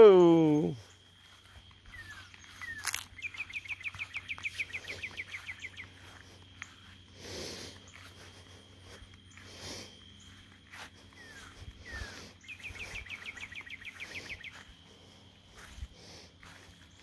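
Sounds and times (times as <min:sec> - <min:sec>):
bird trilling chirps: 0:01.8 - 0:06.8, 0:11.1 - 0:14.8.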